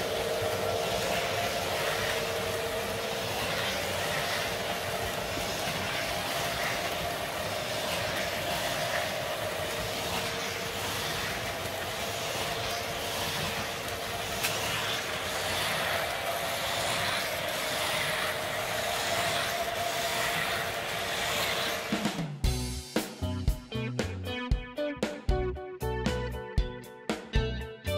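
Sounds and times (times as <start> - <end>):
model train rumbling with hum: 0.0 - 22.8
music with drums: 21.9 - 27.9.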